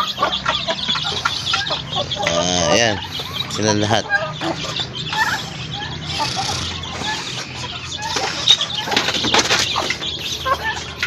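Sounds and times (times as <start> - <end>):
chickens clucking and chirping: 0.0 - 11.0
chickens flapping wings: 8.0 - 11.0.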